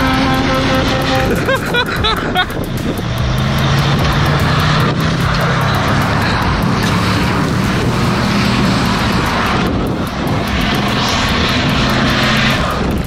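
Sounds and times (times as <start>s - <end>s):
diesel truck engine under load: 0.0s - 13.0s
wind hissing on microphone: 0.0s - 13.0s.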